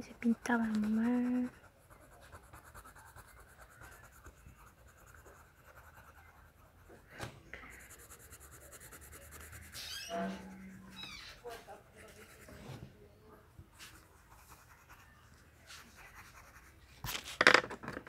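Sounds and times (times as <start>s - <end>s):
pencil scratching on paper: 0.0s - 7.0s, 7.6s - 12.9s, 13.8s - 17.2s.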